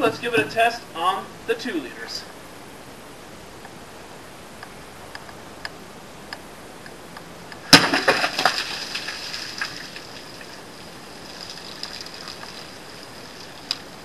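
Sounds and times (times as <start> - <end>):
machete whacking plastic bottles: 7.7 - 9.0
bottles clattering: 7.7 - 10.0
soda splashing: 7.7 - 14.0.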